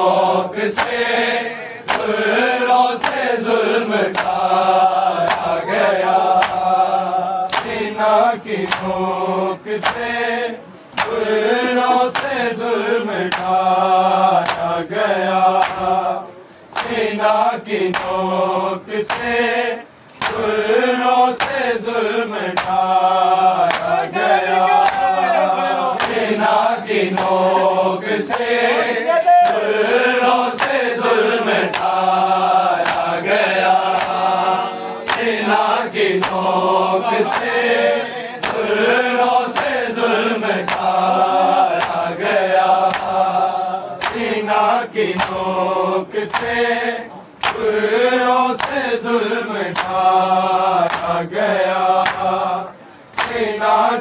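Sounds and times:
men chanting a lament: 0.0s - 54.0s
sharp rhythmic strikes: 0.2s - 11.4s, 20.1s - 21.8s, 38.4s - 46.8s.

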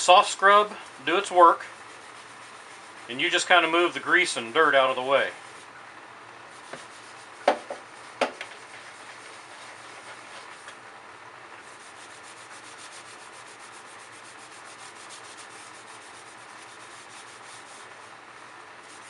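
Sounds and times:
sponge scrubbing fan blade: 0.0s - 5.8s, 6.4s - 10.8s, 11.5s - 19.0s
sharp knocks: 7.4s - 8.6s.

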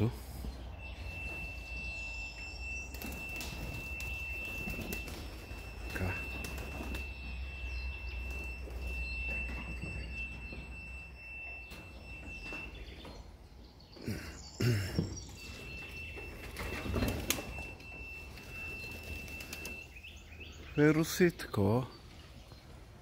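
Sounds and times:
faint high whine: 0.0s - 12.7s
pigeons flapping wings: 2.9s - 7.1s, 16.2s - 19.8s.

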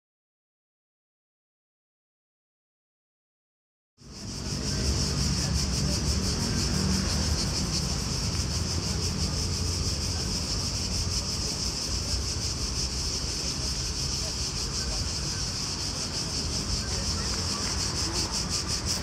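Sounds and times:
cicadas chorus: 4.0s - 19.0s.

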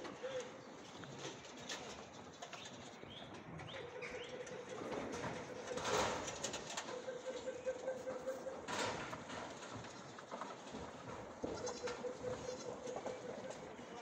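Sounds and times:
birds cooing and chirping: 0.0s - 1.0s, 2.4s - 9.3s, 11.4s - 14.0s.

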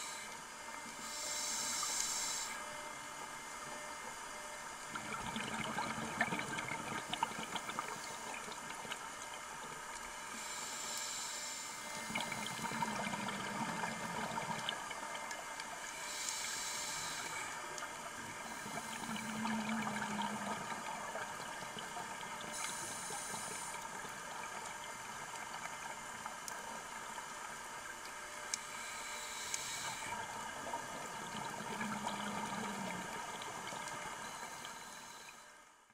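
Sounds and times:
diver breathing through regulator: 1.0s - 2.6s, 10.4s - 13.3s, 15.9s - 17.6s, 22.5s - 23.8s, 28.7s - 30.2s, 34.2s - 35.5s
exhaled bubbles burbling: 4.9s - 8.9s, 12.0s - 15.0s, 18.1s - 22.5s, 30.3s - 34.2s.

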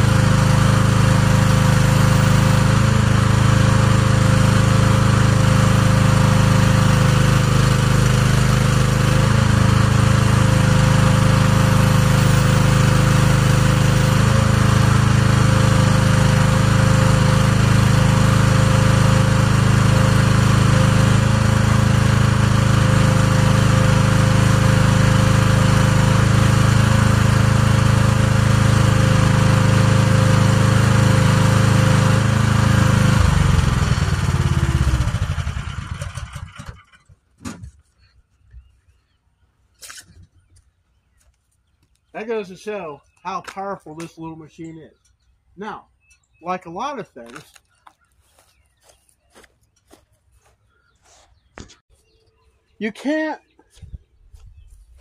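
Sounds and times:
mini excavator engine running: 0.0s - 37.6s.

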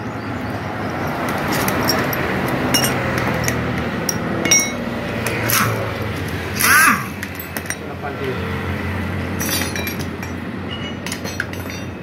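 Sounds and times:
metal tools and parts clinking: 1.0s - 8.0s, 9.4s - 12.0s.

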